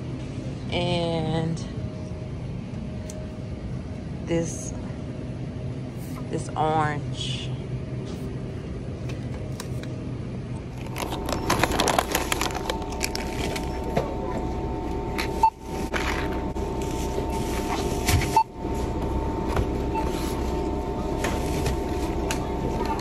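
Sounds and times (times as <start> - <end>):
store background hum: 0.0 - 23.0
packaging crackling and scraping: 10.7 - 13.9.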